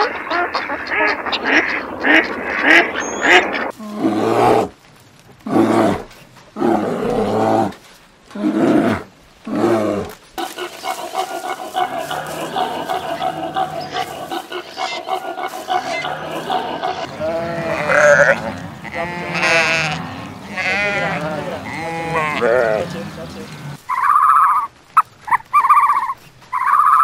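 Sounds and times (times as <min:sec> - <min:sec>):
mixed animal sounds: 0:00.0 - 0:04.7, 0:05.4 - 0:27.0
bear growling: 0:03.7 - 0:04.8, 0:05.4 - 0:23.8.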